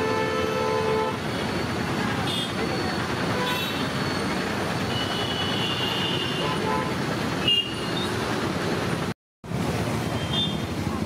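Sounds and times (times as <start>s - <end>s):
busy road traffic: 0.0s - 11.0s.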